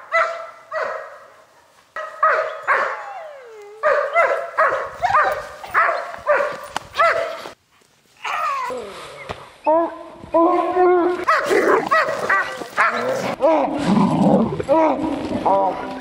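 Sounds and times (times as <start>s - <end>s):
dog barking: 0.0s - 1.3s, 2.0s - 3.2s, 3.8s - 7.6s, 11.2s - 13.3s.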